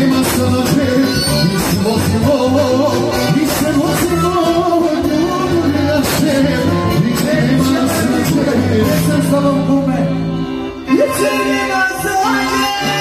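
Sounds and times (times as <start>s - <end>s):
drum kit steady beat: 0.0s - 9.7s
man singing into microphone: 0.0s - 13.0s.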